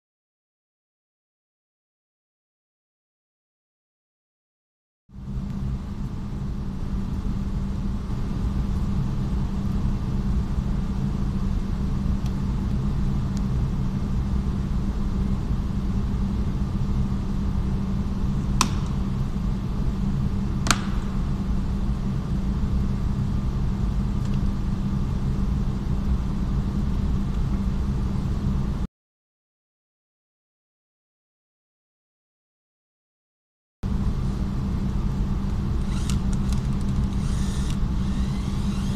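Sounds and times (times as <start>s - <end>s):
low hum: 5.2s - 28.9s, 33.8s - 38.9s.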